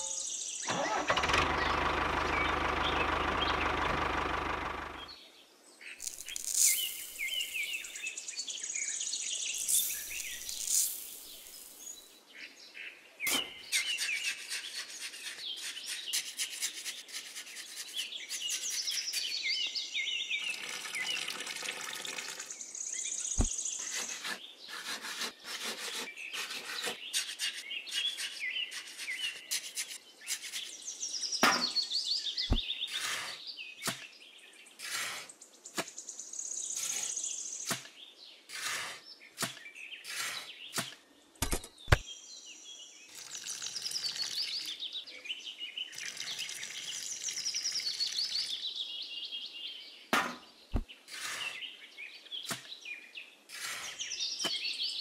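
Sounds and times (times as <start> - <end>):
birds chirping: 0.0 - 55.0
trowel scraping dry cement mix: 13.3 - 19.3, 23.4 - 30.7, 32.9 - 34.0, 34.8 - 35.3, 36.8 - 37.8, 38.5 - 40.9, 51.1 - 51.6, 53.5 - 54.6.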